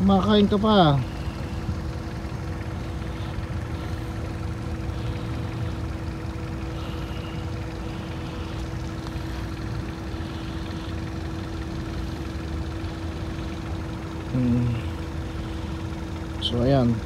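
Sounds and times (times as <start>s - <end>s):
steady machine hum: 0.0s - 17.0s.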